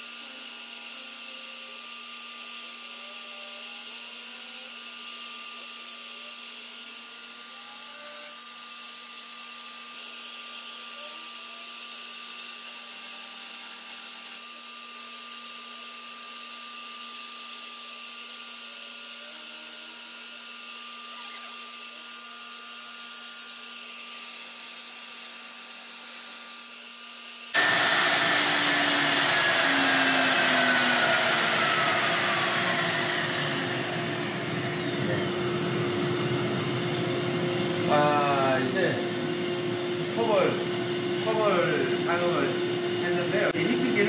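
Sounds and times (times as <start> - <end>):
wood-milling machine humming: 27.6 - 44.0.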